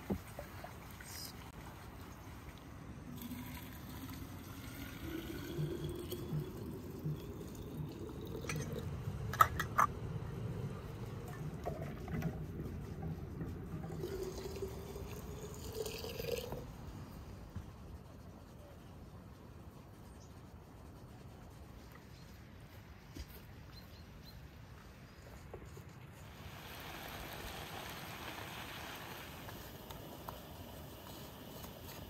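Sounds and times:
water poured into glass jar: 3.1s - 9.9s, 13.8s - 16.8s.

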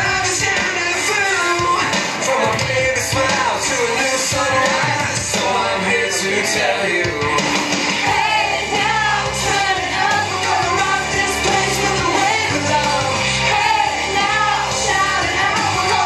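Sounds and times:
song with singing over a beat: 0.0s - 16.0s.

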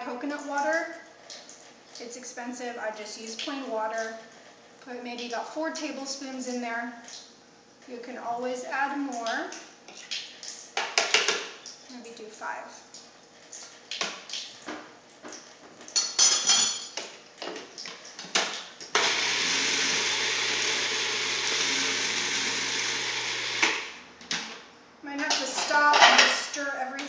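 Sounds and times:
food processor motor running: 18.9s - 24.0s.

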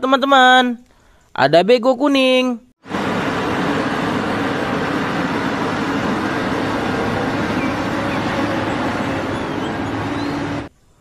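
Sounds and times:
excavator diesel engine running: 2.8s - 10.7s.

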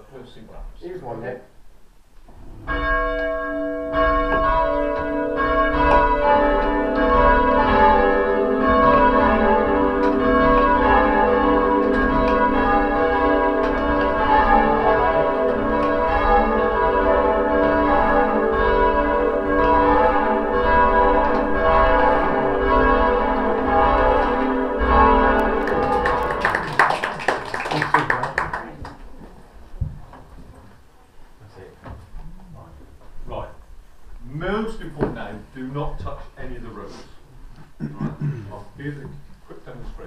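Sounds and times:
church bells ringing: 2.7s - 26.9s.

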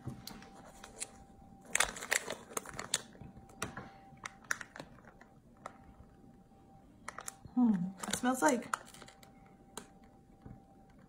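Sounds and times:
plastic bag crinkling: 0.4s - 5.9s, 7.1s - 9.6s.

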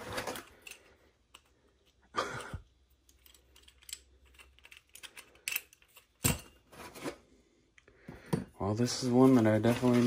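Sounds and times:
metal and plastic pieces clicking: 0.3s - 6.5s.

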